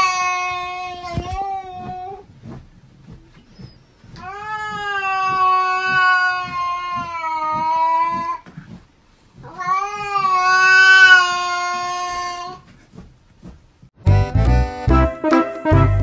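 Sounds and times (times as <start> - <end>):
cat yowling: 4.2 - 8.4, 9.4 - 12.6.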